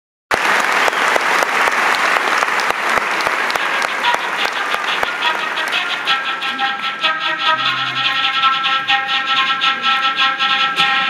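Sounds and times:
audience applauding: 0.3 - 6.9
sharp rhythmic knocks: 3.2 - 11.0
sustained instrument notes: 3.6 - 11.0.

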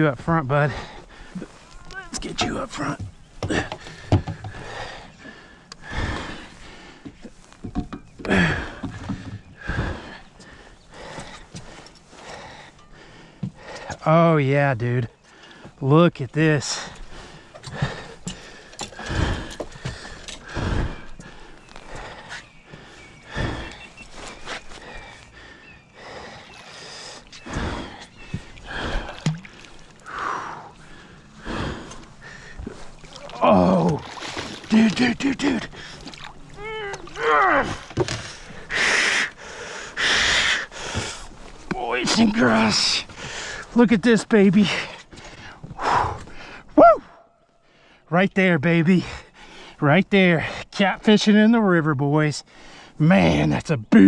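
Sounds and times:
man breathing hard: 3.4 - 7.4, 8.2 - 14.0, 16.7 - 33.1, 37.6 - 41.6, 43.1 - 43.7, 44.7 - 46.8.

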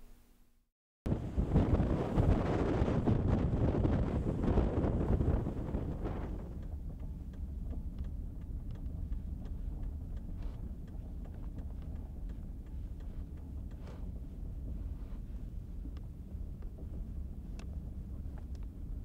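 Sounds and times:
wind on microphone: 1.1 - 19.0
car road and engine rumble: 4.8 - 19.0
faint ticks: 6.2 - 18.8.

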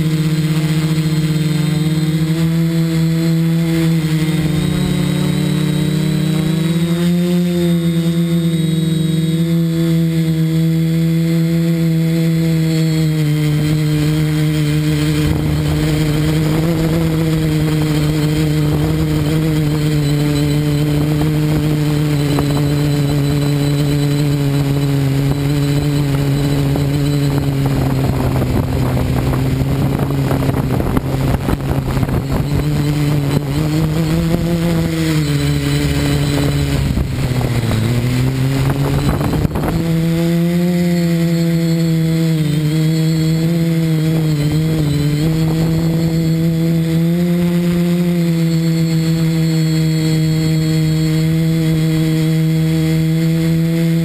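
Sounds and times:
drone motors droning hum: 0.0 - 54.0
gusty rushing wind: 13.8 - 22.8, 24.3 - 40.7.

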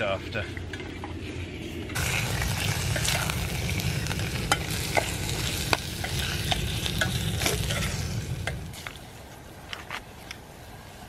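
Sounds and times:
chicken sizzling in oil: 2.0 - 8.8.

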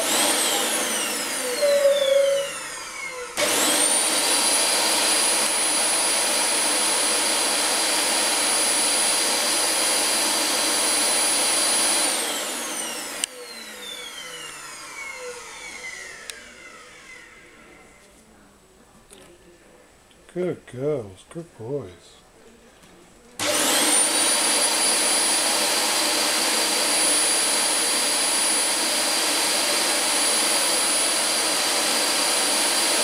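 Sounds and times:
vacuum cleaner motor whining: 0.0 - 18.3, 23.4 - 33.0.

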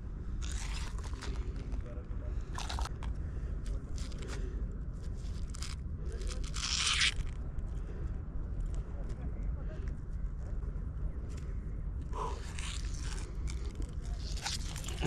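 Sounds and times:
scraping and crunching on rock: 0.4 - 4.5, 5.1 - 7.4, 12.2 - 15.0.

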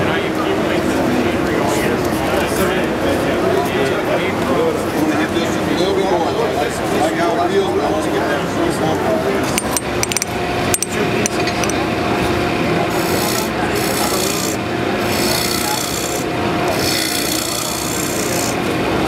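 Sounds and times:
wood lathe humming: 12.2 - 19.0
turning tool scraping wood: 12.9 - 18.6.

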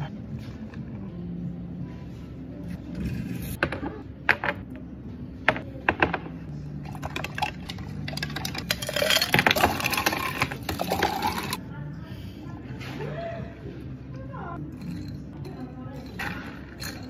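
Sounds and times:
jars and spoon clinking: 6.8 - 11.6, 14.7 - 17.0
ice cubes clattering into jars: 6.9 - 11.6.

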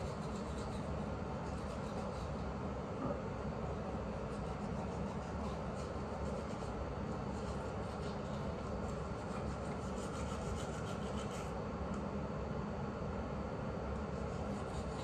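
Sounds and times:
toothbrush scrubbing teeth: 0.0 - 2.4, 4.3 - 11.5
low steady hum: 0.0 - 15.0.

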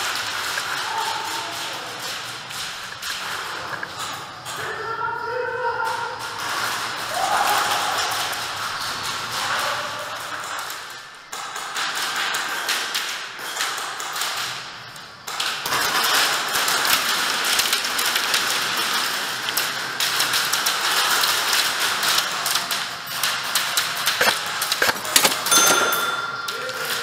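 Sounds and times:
airsoft guns firing rapidly: 0.0 - 3.8, 15.3 - 27.0.

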